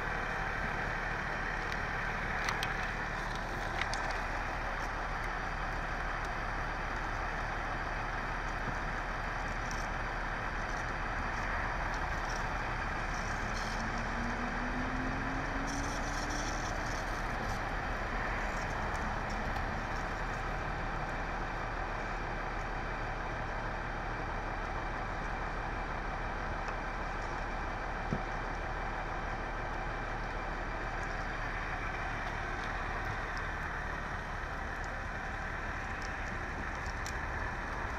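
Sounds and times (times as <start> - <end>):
traffic engines droning: 0.0 - 37.9
engine rising in pitch: 12.8 - 18.4.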